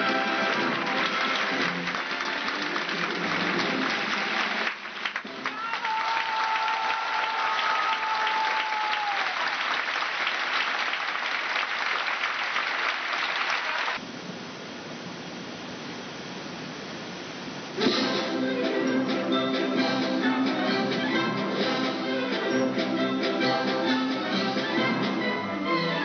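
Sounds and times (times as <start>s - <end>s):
orchestra music: 0.0s - 4.2s, 17.8s - 26.0s
audience applauding: 0.0s - 14.0s.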